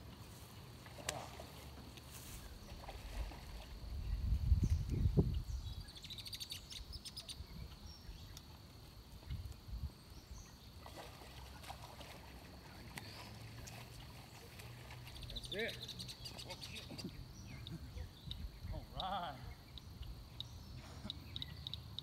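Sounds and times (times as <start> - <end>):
birds chirping: 2.4 - 8.6, 9.2 - 22.0
low rumbling on microphone: 3.1 - 5.8.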